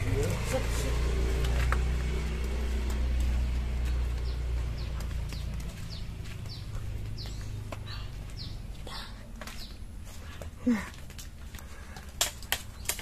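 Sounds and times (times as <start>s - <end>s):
vehicle engine humming: 0.0s - 13.0s
small bird chirping: 3.9s - 9.8s.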